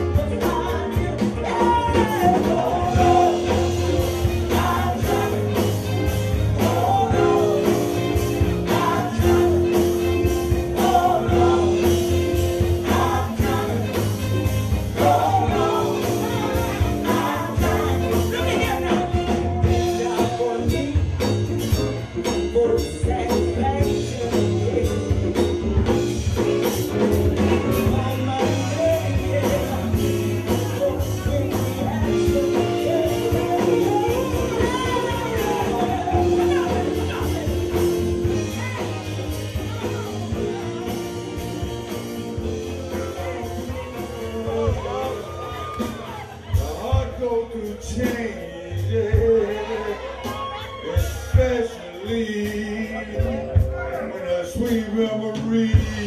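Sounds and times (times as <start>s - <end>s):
drums and cymbals: 0.0s - 56.0s
live band playing: 0.0s - 56.0s
woman singing into microphone: 32.8s - 37.6s.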